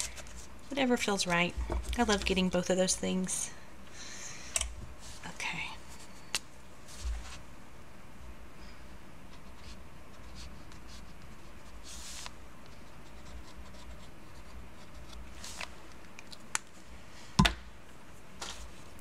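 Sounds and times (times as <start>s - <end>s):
pen scratching on paper: 12.8s - 15.2s.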